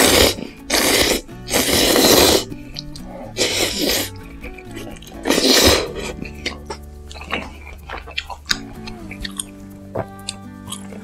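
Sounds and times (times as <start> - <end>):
person slurping noodles: 0.0 - 8.4.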